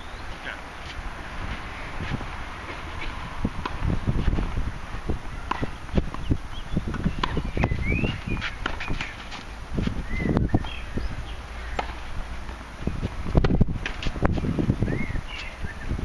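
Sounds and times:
wind rumbling on microphone: 0.0s - 16.0s
tennis ball bouncing: 0.8s - 10.0s, 11.7s - 14.4s
rackets striking tennis ball: 5.4s - 10.0s, 11.7s - 14.4s.

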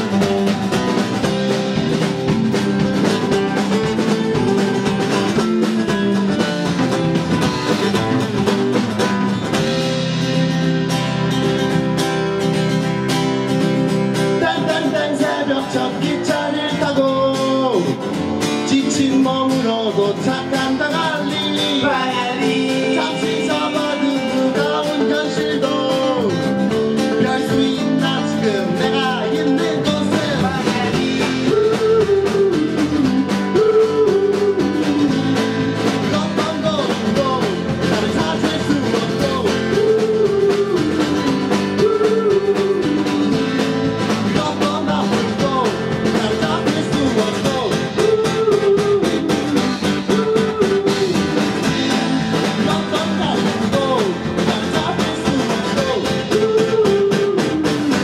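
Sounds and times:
guitar: 0.0s - 58.0s
person singing: 14.2s - 58.0s.

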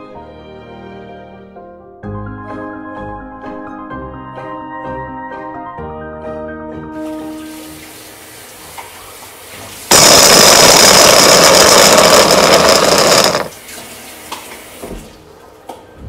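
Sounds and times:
electric food chopper whining: 9.9s - 13.5s.

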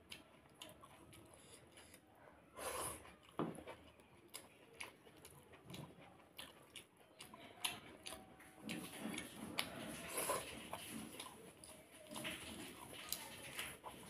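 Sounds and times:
man chewing food: 0.0s - 14.0s.

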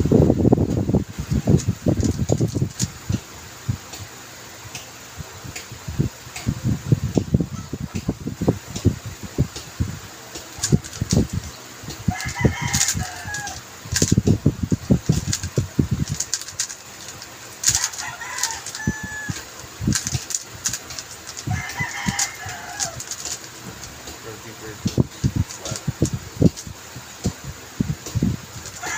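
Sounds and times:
puzzle cube plastic clacks: 1.6s - 3.3s, 10.3s - 24.2s, 24.8s - 27.4s, 28.0s - 28.9s.

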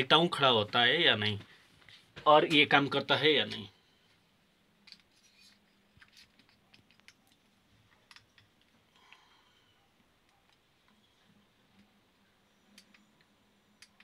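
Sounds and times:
tripod clicks and scrapes: 4.8s - 7.2s.

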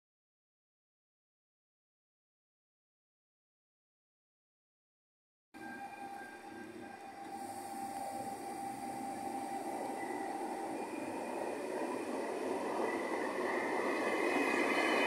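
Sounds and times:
faint steady whine: 5.6s - 15.0s
higher whine: 5.6s - 15.0s
train wheels on rails: 5.6s - 15.0s.

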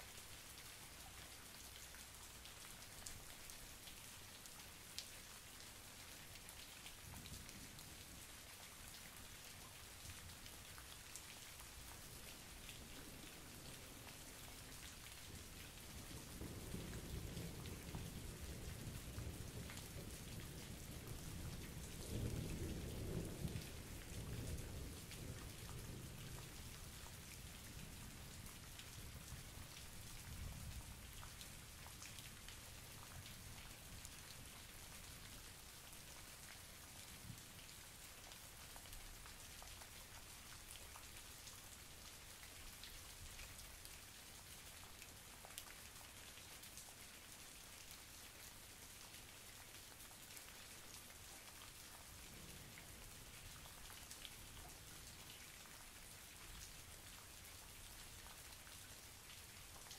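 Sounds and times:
raindrops ticking close by: 0.0s - 59.9s
steady rain falling: 0.0s - 59.9s
low roll of thunder: 16.1s - 26.6s.

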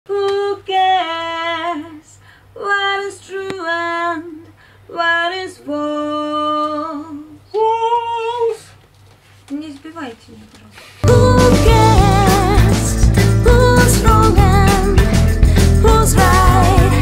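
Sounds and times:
woman singing: 0.1s - 8.8s, 11.0s - 17.0s.

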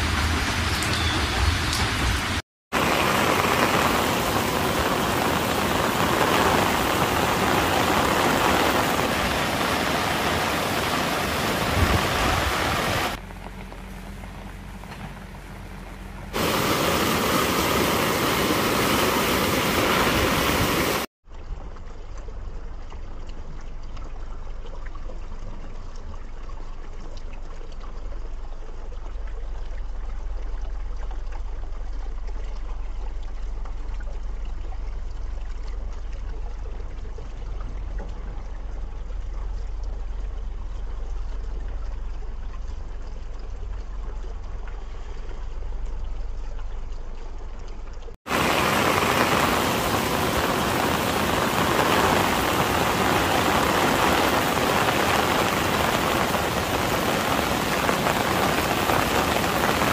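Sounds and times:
heavy rain hissing: 0.0s - 13.2s, 16.3s - 21.1s, 48.3s - 59.9s
runoff trickling over ground: 0.0s - 59.9s.

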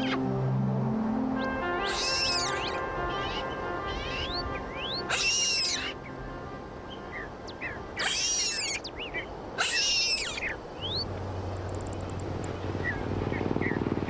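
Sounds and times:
faint rising chirps: 10.2s - 14.0s.

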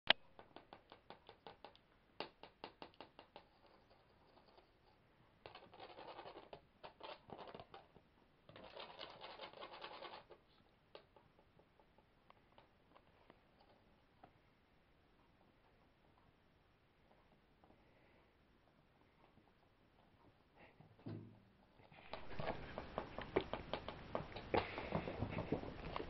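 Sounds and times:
scratchy rustling: 3.3s - 7.9s, 8.5s - 10.6s.

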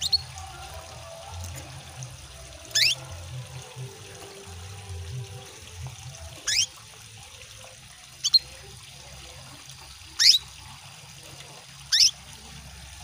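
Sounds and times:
canary chirps: 0.0s - 0.6s, 2.6s - 3.4s, 6.4s - 6.8s, 8.2s - 8.6s, 10.1s - 10.5s, 11.9s - 12.2s
trickling water: 0.0s - 13.0s.

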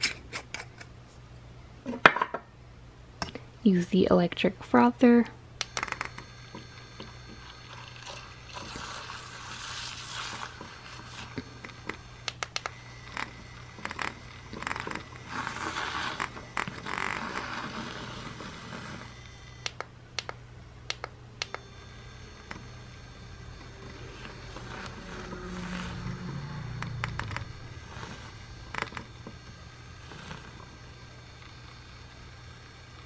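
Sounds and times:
electric milk frother whisking: 5.6s - 19.8s, 21.4s - 33.0s
sharp clicks: 11.8s - 14.1s.

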